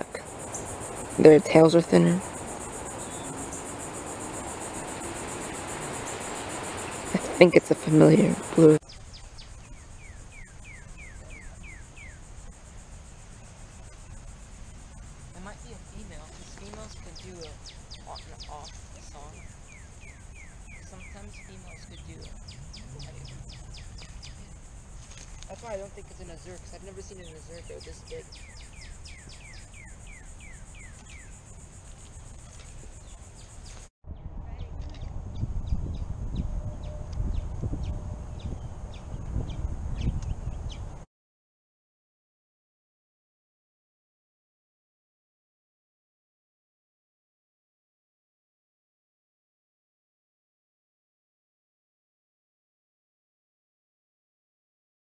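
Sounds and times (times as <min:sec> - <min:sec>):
insects trilling: 0:00.0 - 0:33.9.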